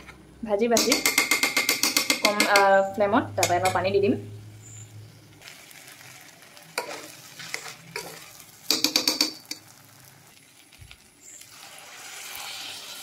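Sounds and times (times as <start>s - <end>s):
spoon clinking against pot: 0.8s - 2.8s, 3.4s - 3.9s, 6.8s - 9.6s
food sizzling: 3.6s - 13.0s
spoon scraping a pot: 6.7s - 9.7s.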